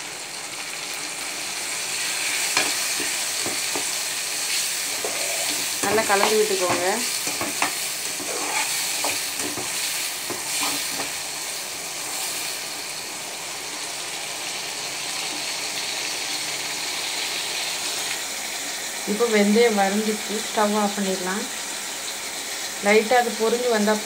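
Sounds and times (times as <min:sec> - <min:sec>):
food sizzling in hot oil: 0:00.0 - 0:24.0
spoon scraping a pan: 0:02.1 - 0:11.2.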